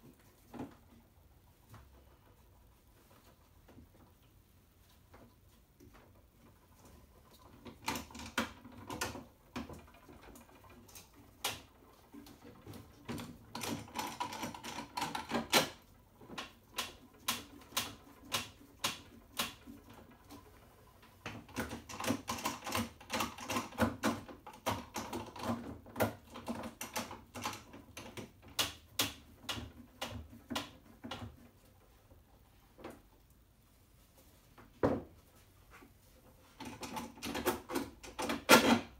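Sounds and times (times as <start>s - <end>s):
clamps clicking and knocking on wood: 36.6s - 38.9s.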